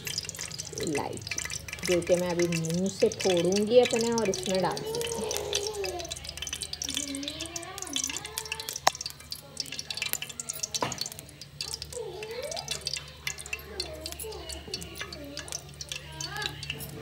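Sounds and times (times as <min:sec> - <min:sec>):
ghee crackling in metal pot: 0:00.0 - 0:17.0.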